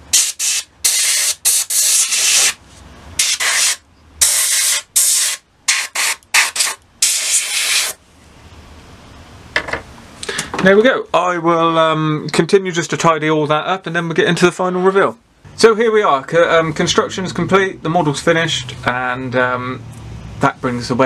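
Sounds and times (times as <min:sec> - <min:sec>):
airbrush air blasts hissing: 0:00.0 - 0:02.6, 0:03.2 - 0:08.0.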